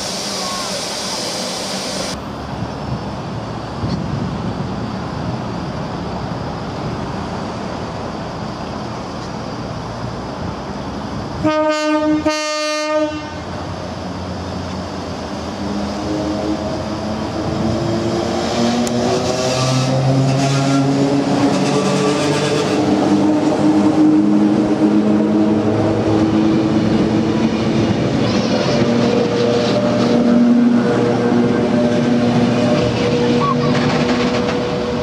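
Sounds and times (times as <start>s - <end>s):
train wheels rumbling: 13.3s - 35.0s.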